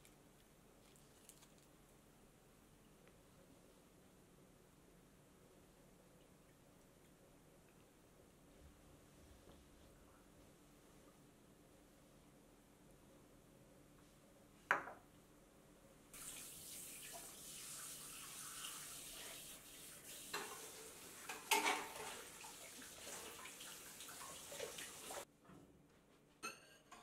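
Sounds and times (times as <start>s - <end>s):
plates and dishes clinking: 21.2s - 22.2s, 26.4s - 27.0s.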